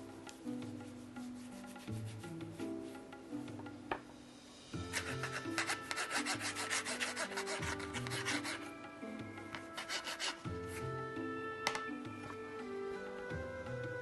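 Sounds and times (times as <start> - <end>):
soft background music: 0.0 - 14.0
dough rubbing strokes on cutting board: 0.4 - 3.1, 4.8 - 8.7, 9.6 - 10.8.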